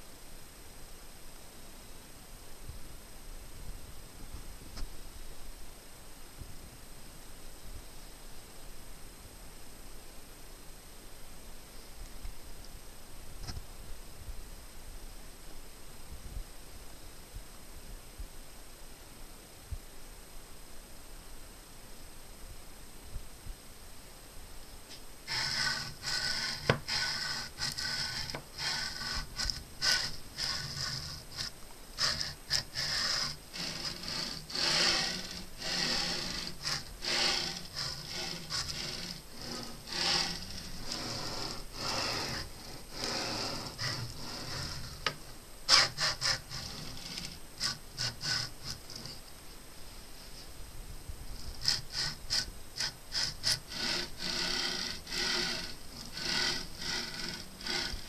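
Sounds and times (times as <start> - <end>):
stepper motors rasping hum: 25.3 - 49.2, 51.6 - 58.0.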